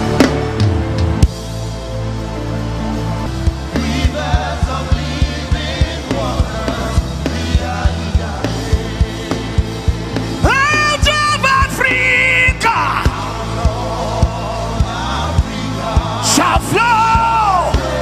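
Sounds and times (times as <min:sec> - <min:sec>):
gospel band playing: 0:00.0 - 0:18.0
voices singing: 0:03.6 - 0:18.0
lead singer singing loudly: 0:03.7 - 0:18.0.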